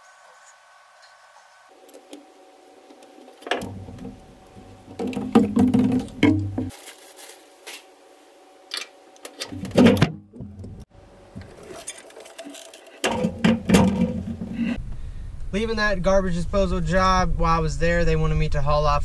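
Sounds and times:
metal and plastic clatter: 0:03.0 - 0:06.8, 0:08.7 - 0:10.8, 0:11.4 - 0:14.8.

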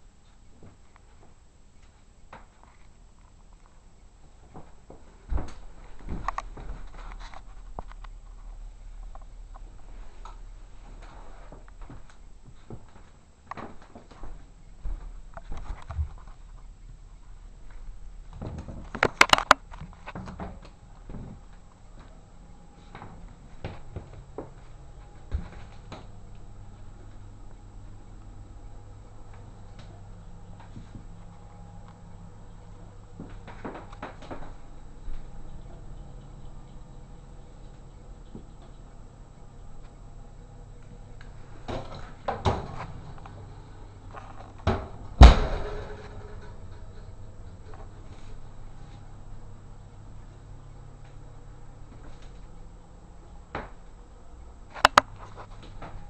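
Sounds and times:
oven door slamming shut: 0:44.6 - 0:46.8
knocks and clatters of oven door: 0:44.6 - 0:47.0.

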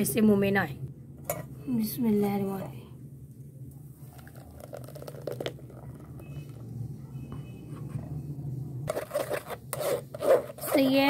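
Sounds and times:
steady low hum: 0:00.0 - 0:11.0
milkshake pouring into strainer: 0:04.0 - 0:06.0
spoon rubbing against mesh: 0:08.9 - 0:11.0.

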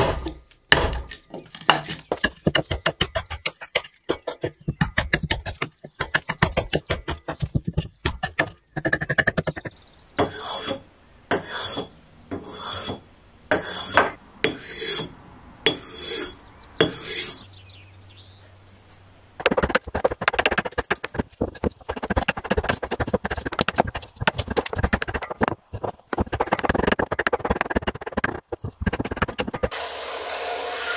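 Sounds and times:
hatchet chopping wood: 0:00.0 - 0:09.6
blade rasping on whetstone: 0:10.3 - 0:15.1.

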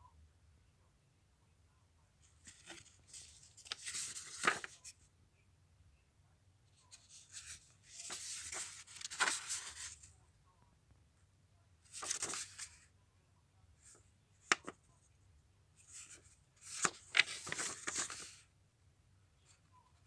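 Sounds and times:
book pages turning: 0:02.4 - 0:05.0, 0:06.9 - 0:10.1, 0:11.9 - 0:12.8, 0:14.4 - 0:14.8, 0:15.9 - 0:18.4.

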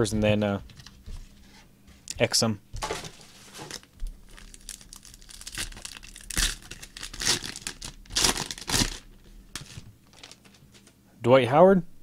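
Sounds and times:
foil wrapper tearing and crinkling: 0:03.6 - 0:10.6.

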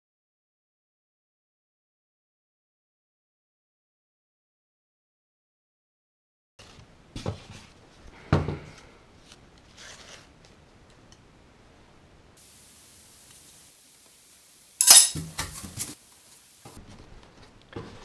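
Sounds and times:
aluminium struts clinking: 0:14.8 - 0:15.2.

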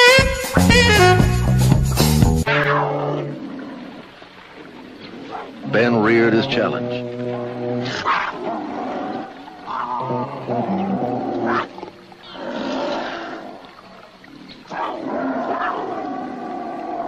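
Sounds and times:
cougar and bear snarling: 0:03.0 - 0:13.7, 0:14.4 - 0:17.0.

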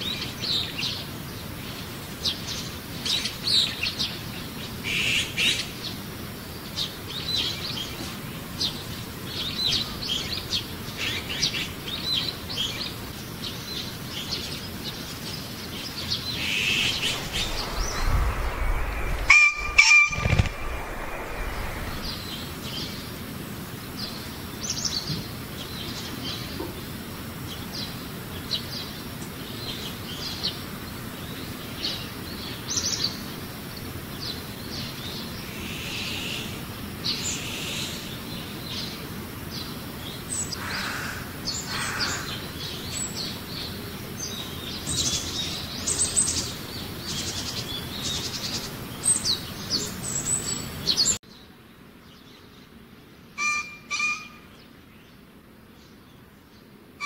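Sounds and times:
steady background hiss: 0:00.0 - 0:57.0
lower bird calls: 0:15.9 - 0:23.0, 0:53.4 - 0:54.6.

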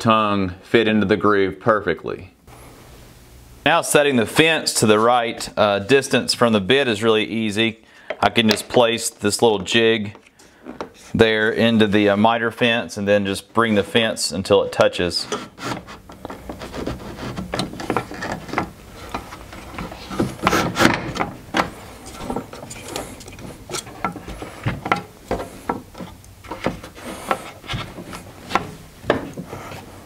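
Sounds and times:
wood rubbing across table: 0:15.2 - 0:30.0.

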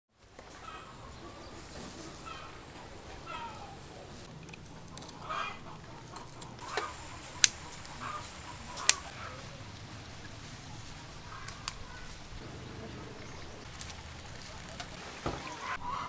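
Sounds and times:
chicken clucking: 0:00.5 - 0:16.0
sharp clicks: 0:08.8 - 0:09.1.

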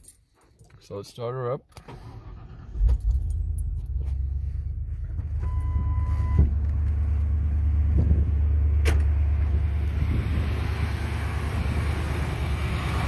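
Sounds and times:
car engine idling: 0:01.8 - 0:13.0
steady beep: 0:05.4 - 0:06.5.

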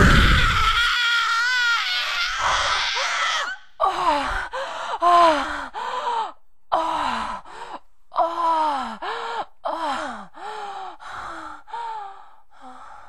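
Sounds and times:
person crying out: 0:00.0 - 0:03.6.

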